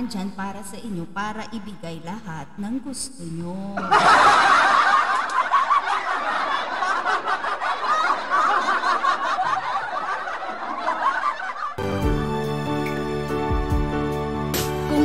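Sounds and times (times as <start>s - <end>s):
canned crowd laughter: 3.8s - 11.8s.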